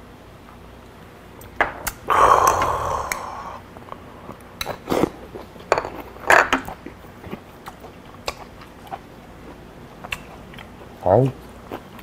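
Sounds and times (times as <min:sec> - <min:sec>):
chewing and mouth sounds: 0:02.4 - 0:12.0.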